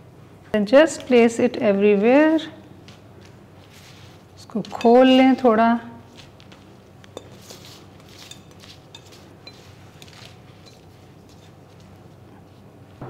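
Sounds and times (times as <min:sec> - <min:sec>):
pastry crinkly rustling: 0:02.8 - 0:12.7.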